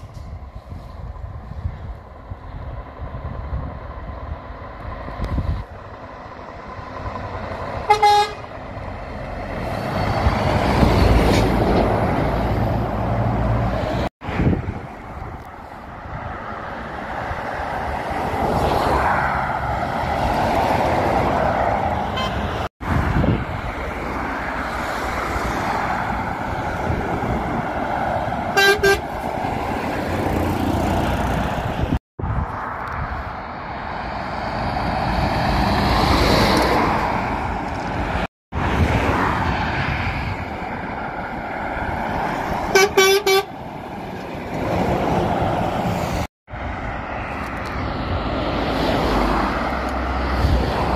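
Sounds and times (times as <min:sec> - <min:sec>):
lorries passing on road: 0:00.0 - 0:50.9
truck horn toots: 0:07.8 - 0:08.5, 0:22.1 - 0:22.5, 0:28.5 - 0:29.1, 0:42.7 - 0:43.5.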